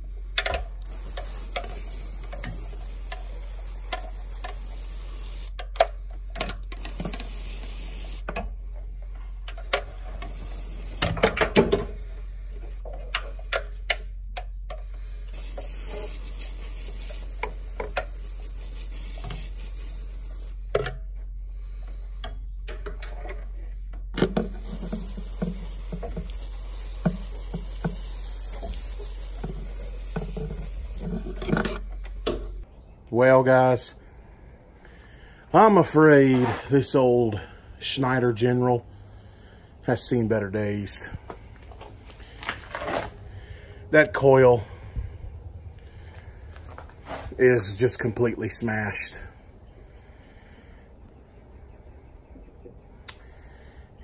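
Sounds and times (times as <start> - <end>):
spray can hissing: 0.8 - 5.6, 6.8 - 8.3, 10.2 - 11.2, 15.3 - 20.6, 24.5 - 31.3.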